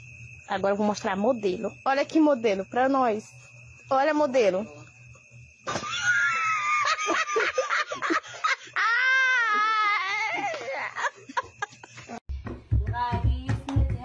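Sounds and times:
people laughing: 5.7s - 12.2s
high wavering vocal wail: 8.7s - 11.0s.

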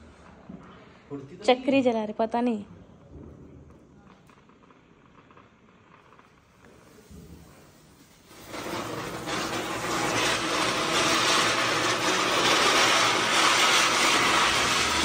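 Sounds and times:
ground spinner firework hissing: 3.7s - 15.0s.

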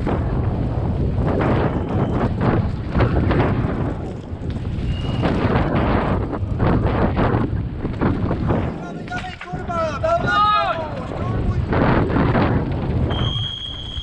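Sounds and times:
bike knocks and rattles: 0.0s - 10.0s
bike tyres rumbling on dirt: 0.0s - 14.0s
wind buffeting microphone: 0.0s - 14.0s.

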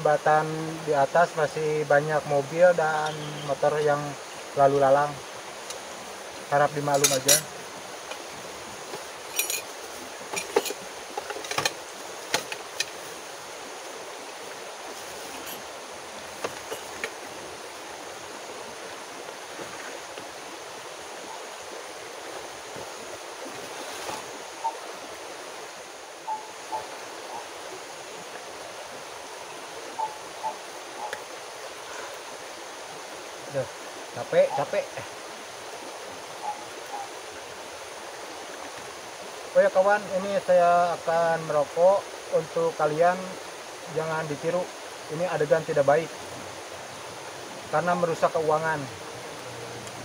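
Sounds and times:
large river rushing: 0.0s - 50.0s.

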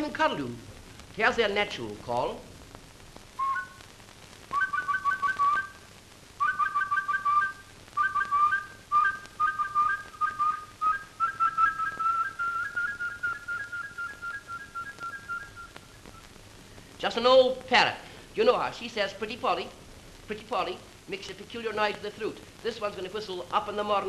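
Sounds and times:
man whistling bird call: 3.4s - 3.8s, 4.5s - 5.8s, 6.4s - 16.2s.

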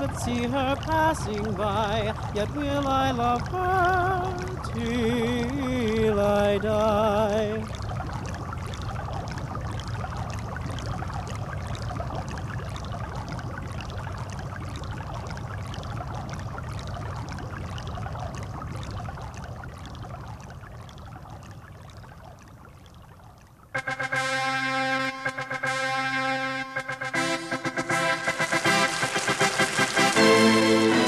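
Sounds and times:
hot tub water bubbling: 0.0s - 25.8s, 26.7s - 31.0s.

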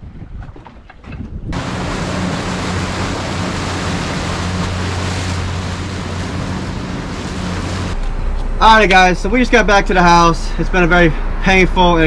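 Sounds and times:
wind on microphone: 0.0s - 8.0s
water rushing past hull: 1.5s - 8.0s
low engine drone: 1.6s - 12.0s.

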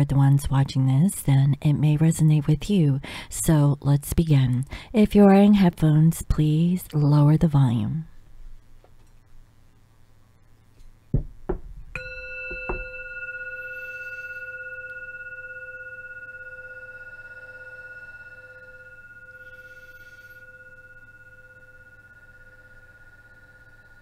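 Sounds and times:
handling knocks: 11.1s - 13.0s
singing bowl ringing: 11.9s - 24.0s.

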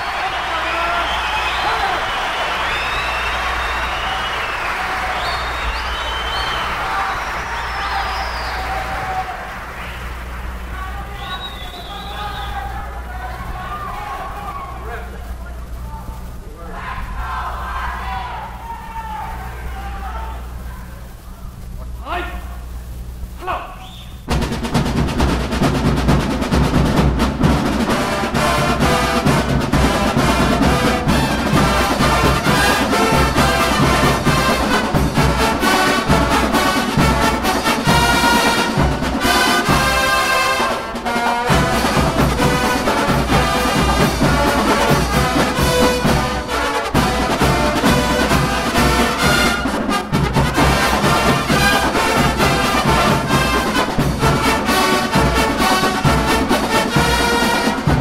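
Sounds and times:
brass horn line playing: 24.3s - 58.0s.

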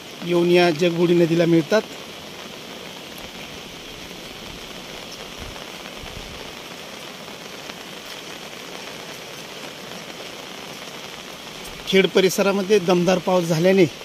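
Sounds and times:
river running in flood: 0.0s - 14.0s.

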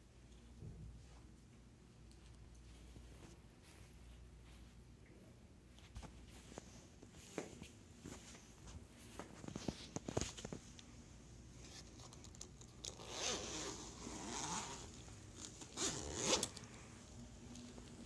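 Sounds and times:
zipper being pulled open: 11.9s - 16.7s.

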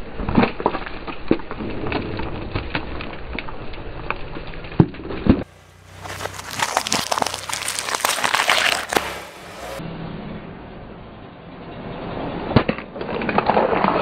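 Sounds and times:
plastic and candy cracking: 6.1s - 9.1s.

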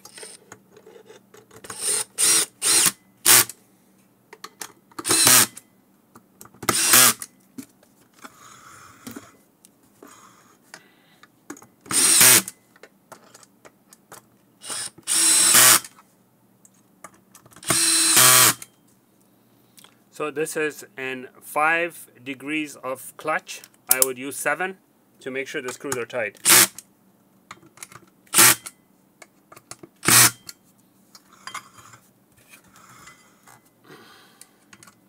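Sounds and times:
cordless drill driving screws: 1.7s - 3.5s, 5.0s - 5.6s, 6.7s - 7.2s, 11.9s - 12.5s, 14.6s - 15.9s, 17.6s - 18.6s, 26.4s - 26.8s, 28.3s - 28.6s, 30.0s - 30.4s.

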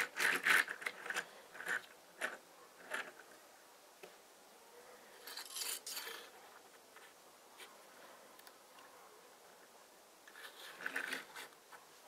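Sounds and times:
plastic toy clicks and scrapes: 0.0s - 3.4s, 5.2s - 6.3s, 10.3s - 11.6s.

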